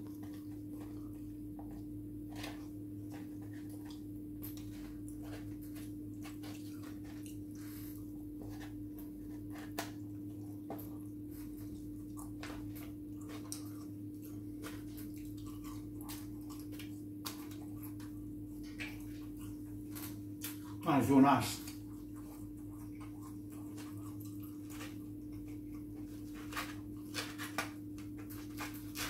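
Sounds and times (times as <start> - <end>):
person chewing with mouth clicks: 0.0 - 20.8, 21.6 - 29.0
steady low hum: 0.0 - 29.0.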